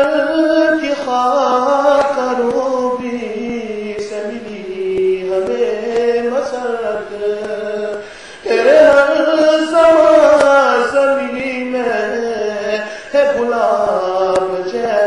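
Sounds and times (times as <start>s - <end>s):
man chanting devotional poem: 0.0s - 15.0s.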